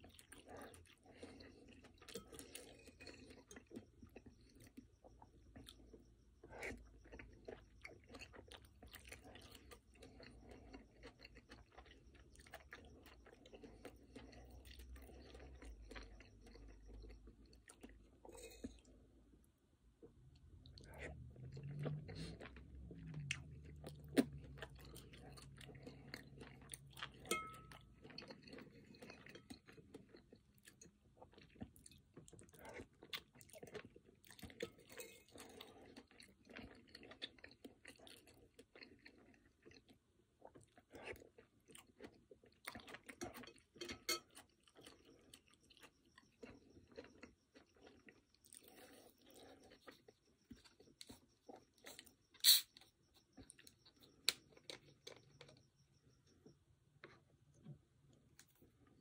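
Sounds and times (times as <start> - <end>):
crunchy chewing: 0.0 - 59.0
metal spoon clinking on bowl: 27.2 - 27.8, 43.4 - 44.4.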